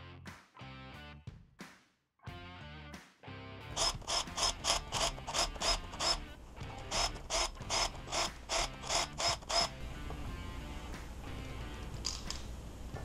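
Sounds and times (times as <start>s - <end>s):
impact driver rattling bursts: 3.8s - 9.7s.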